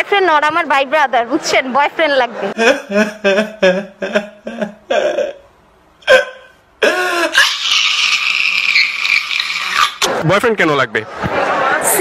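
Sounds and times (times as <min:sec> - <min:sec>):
man wailing: 0:02.6 - 0:05.4
man sobbing: 0:02.6 - 0:08.7.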